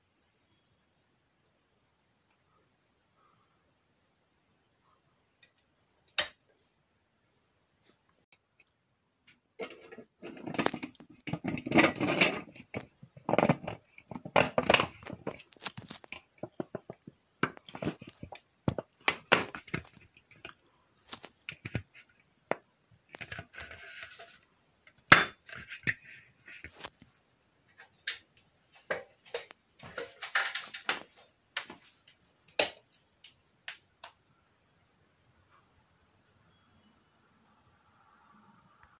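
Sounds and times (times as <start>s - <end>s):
plastic light cover clicking and scraping: 9.3s - 34.2s.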